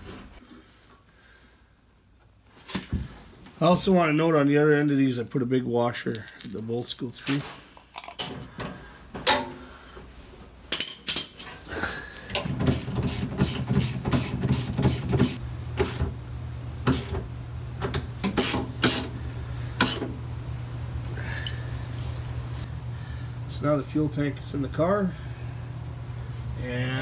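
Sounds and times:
steady low hum: 15.3s - 27.0s.

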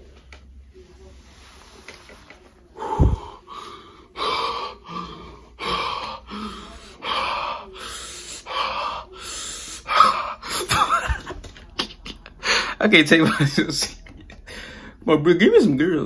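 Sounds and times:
man gasping and huffing: 2.8s - 10.7s.

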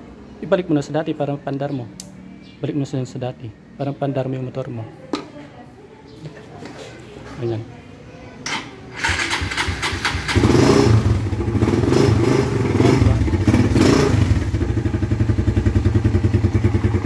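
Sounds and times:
electric starter cranking: 9.0s - 10.6s
motorcycle engine running: 9.0s - 17.0s.

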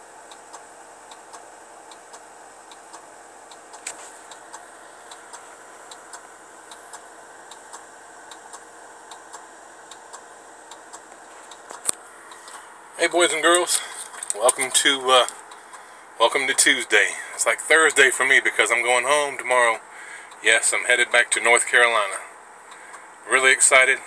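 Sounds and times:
steady low hum: 0.0s - 24.0s
flasher relay ticking: 0.2s - 16.7s, 22.6s - 23.2s.

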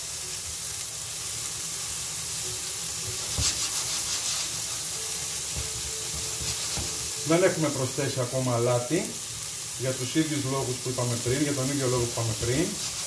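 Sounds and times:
vegetables sizzling in frying pan: 0.0s - 13.0s
spatula strokes in pan: 3.1s - 8.0s, 10.4s - 13.0s.

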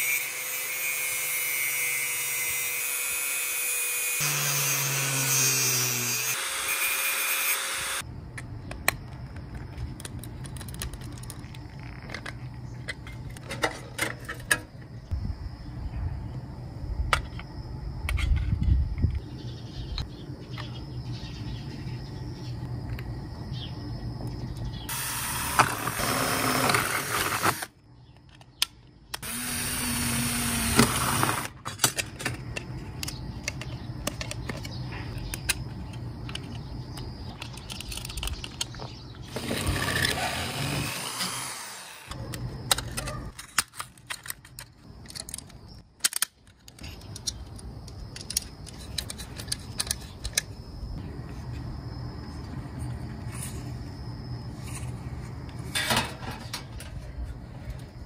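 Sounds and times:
drill boring into metal: 0.0s - 8.0s, 29.2s - 31.5s
metal parts clinking: 37.3s - 38.9s, 42.7s - 50.5s.

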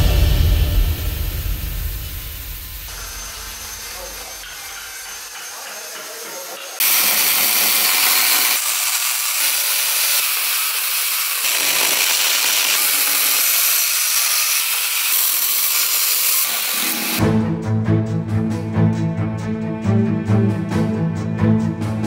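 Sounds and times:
electric chainsaw cutting wood: 2.9s - 17.2s.

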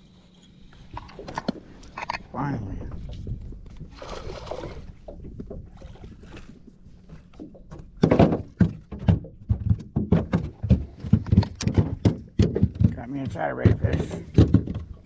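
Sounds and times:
knocks and thumps in metal boat: 7.2s - 15.0s.

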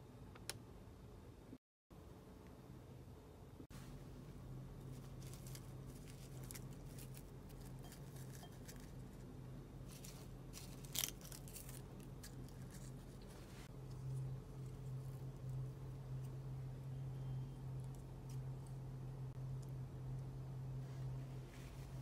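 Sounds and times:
steady low hum: 0.0s - 22.0s
seaweed sheets crackling: 4.8s - 8.9s, 9.8s - 15.0s.

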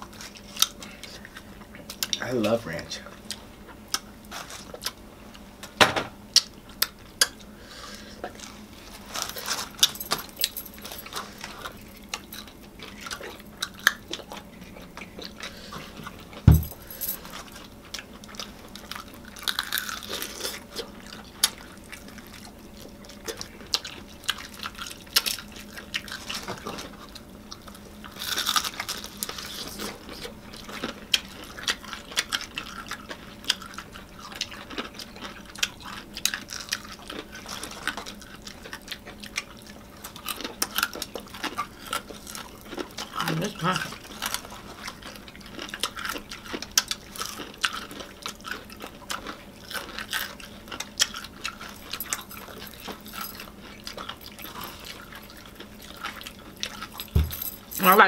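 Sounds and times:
chewing crisp fried chicken: 0.0s - 16.4s, 17.2s - 57.1s
metal bangles jingling: 9.8s - 11.0s, 16.5s - 17.4s, 57.0s - 58.0s
heavy thump: 16.5s - 16.9s, 57.2s - 57.5s.

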